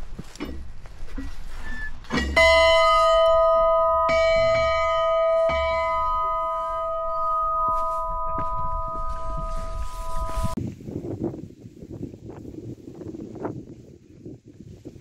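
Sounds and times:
small metal bell ringing: 2.2 - 10.6.

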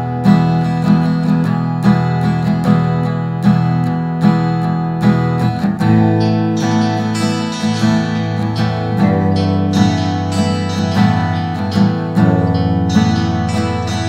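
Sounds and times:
instrumental background music: 0.0 - 14.0.

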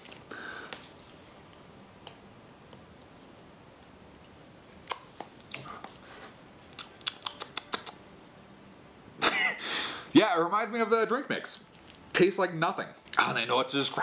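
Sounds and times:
tongue clicks: 4.2 - 5.9, 6.7 - 8.0
lip smacks: 4.2 - 6.0, 6.6 - 8.1
wet mouth sounds: 4.8 - 6.0, 6.6 - 8.1.

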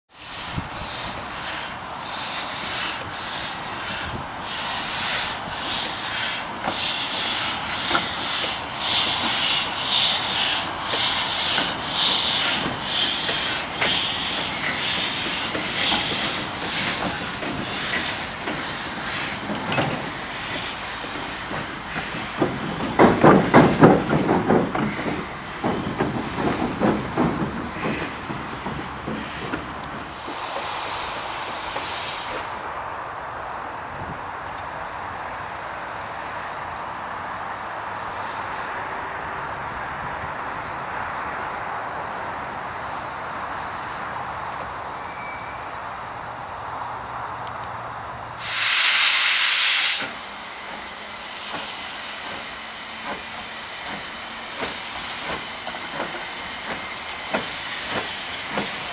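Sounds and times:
steam hiss: 0.1 - 32.9, 48.4 - 58.9
locomotive exhaust beats: 2.0 - 32.4.

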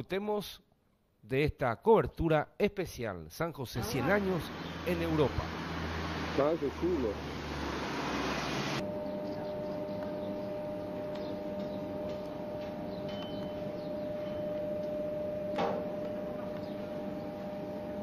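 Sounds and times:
train electric hum: 4.2 - 18.0.

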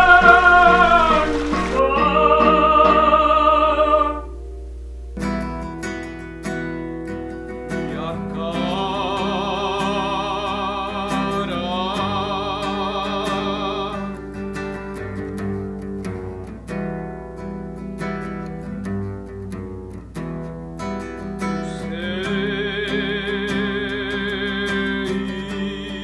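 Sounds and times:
plucked guitar notes: 0.0 - 26.0.

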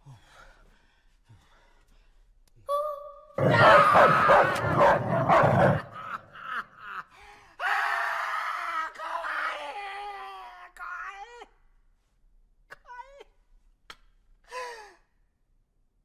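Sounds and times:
man screaming and yelling: 3.4 - 6.2
man wailing: 3.4 - 6.2.

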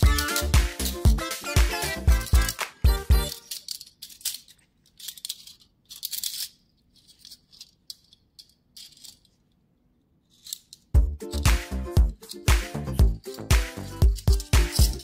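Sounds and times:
dance music with steady beat: 0.0 - 3.3, 11.0 - 15.0
metal handcuffs clinking: 0.0 - 9.5, 10.2 - 11.0, 12.0 - 15.0.

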